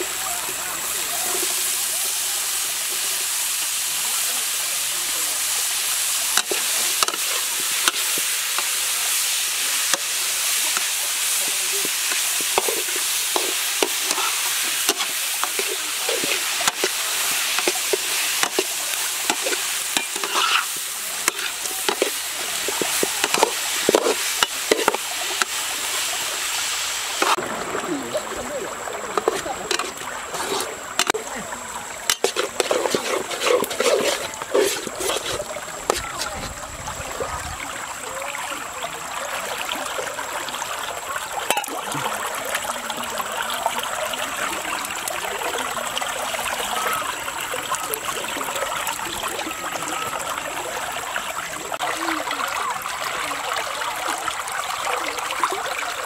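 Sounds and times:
vegetables sizzling in a wok: 0.0 - 27.4, 29.1 - 36.3, 41.4 - 41.9
metal spatula scraping a pan: 6.3 - 25.6, 29.2 - 31.2, 32.1 - 36.4.

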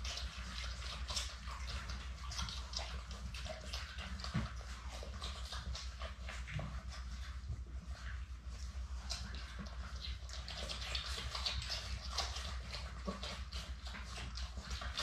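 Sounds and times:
puppies suckling: 0.0 - 15.0.

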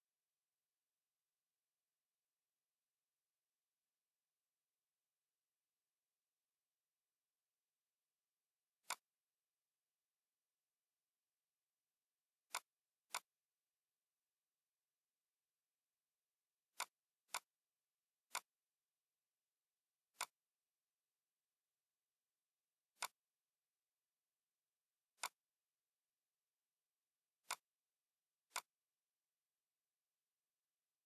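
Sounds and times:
computer mouse clicks: 8.8 - 9.2, 12.4 - 13.4, 16.7 - 17.6, 18.3 - 18.6, 20.1 - 20.6, 22.9 - 23.3, 25.1 - 25.5, 27.4 - 27.8, 28.4 - 28.8.

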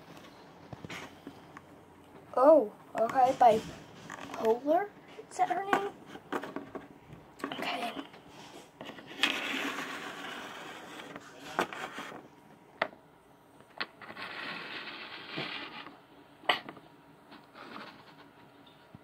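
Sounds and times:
scraping and rustling on tabletop: 3.0 - 12.3, 13.8 - 18.7.

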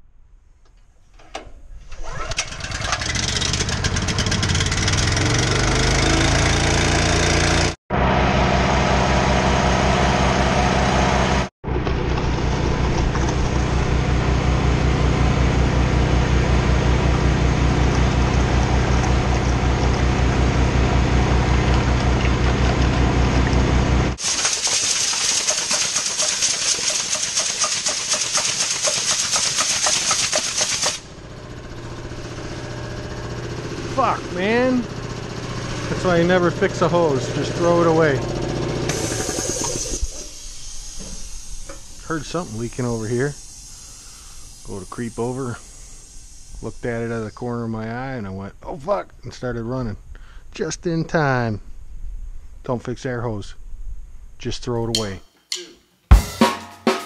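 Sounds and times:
single-cylinder engine running: 1.4 - 47.3
compressed air hissing from hose: 24.2 - 31.1, 38.9 - 47.5.

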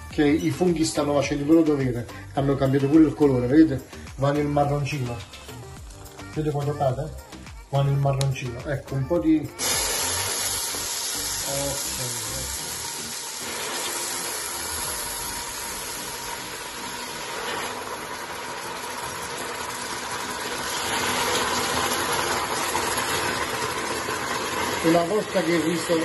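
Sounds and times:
broth sizzling and hissing in a pot: 3.6 - 7.8, 9.4 - 26.0.

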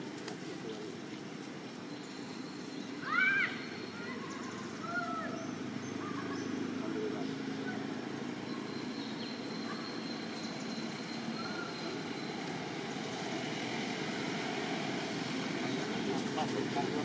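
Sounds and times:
outdoor hiss and rumble: 0.0 - 17.0.

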